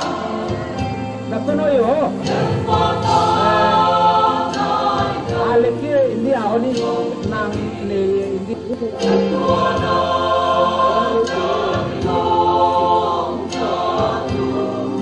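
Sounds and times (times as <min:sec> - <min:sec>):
choir singing a hymn: 0:00.0 - 0:15.0.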